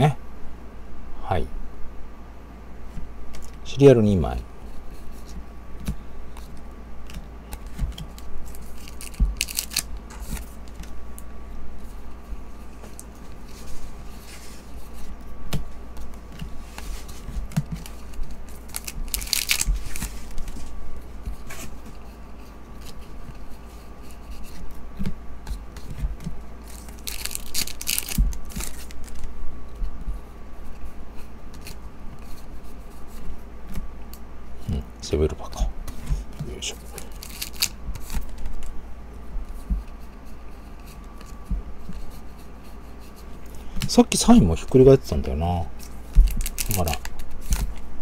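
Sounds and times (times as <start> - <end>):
trading cards being flipped: 4.9 - 11.0, 12.7 - 22.0, 26.6 - 29.3, 35.9 - 38.7, 45.8 - 47.8.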